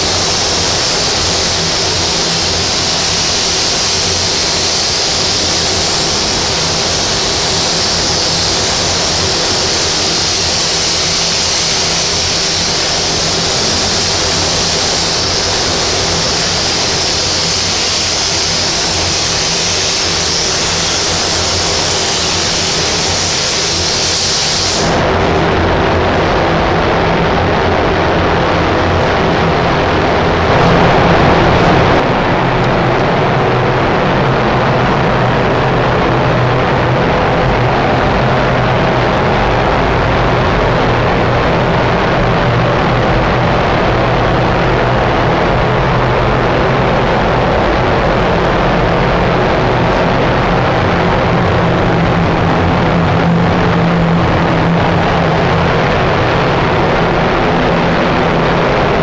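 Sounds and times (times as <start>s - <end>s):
spray gun air hiss: 0.0s - 25.2s
dull rush of air: 0.0s - 59.0s.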